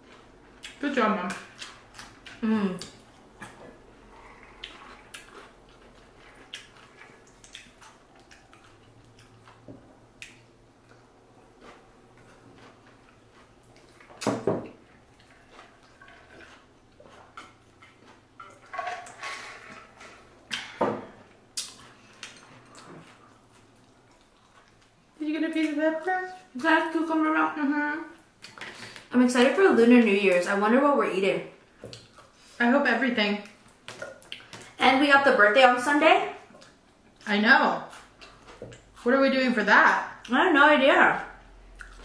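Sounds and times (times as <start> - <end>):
chewing and mouth sounds: 0.0 - 25.8, 31.8 - 32.5, 33.4 - 34.8, 36.4 - 39.1, 41.4 - 42.0.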